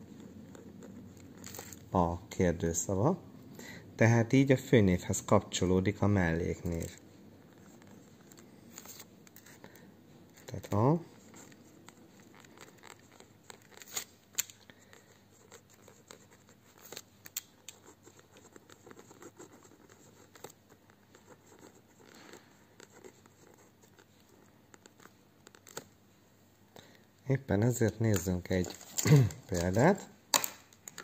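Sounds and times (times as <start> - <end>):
pen scratching on paper: 0.0 - 1.7, 7.4 - 9.6, 14.8 - 17.0, 17.6 - 25.6.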